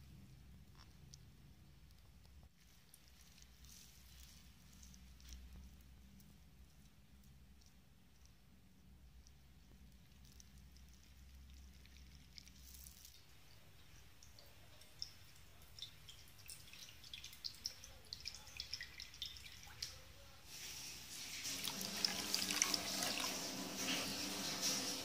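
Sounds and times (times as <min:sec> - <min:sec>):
faint low hum: 0:00.0 - 0:20.5
milk pouring and splashing: 0:09.9 - 0:25.0.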